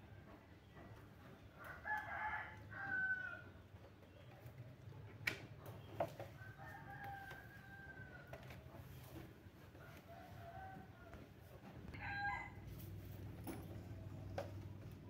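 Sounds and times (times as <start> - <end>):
rooster crowing: 1.6 - 3.4, 11.9 - 12.9.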